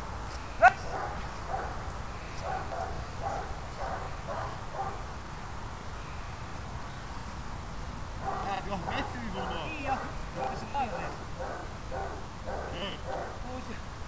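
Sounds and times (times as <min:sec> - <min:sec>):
dog barking: 0:00.6 - 0:01.8, 0:02.4 - 0:05.0, 0:08.2 - 0:13.5.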